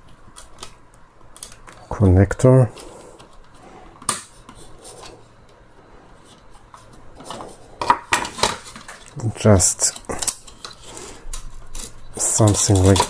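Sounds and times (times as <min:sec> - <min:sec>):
pliers scraping on plastic: 0:09.8 - 0:13.0.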